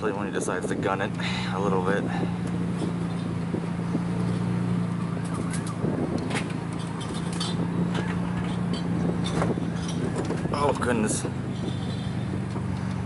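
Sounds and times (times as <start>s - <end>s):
truck engine and road hum: 0.0s - 13.0s
boat rattling on trailer: 5.1s - 13.0s.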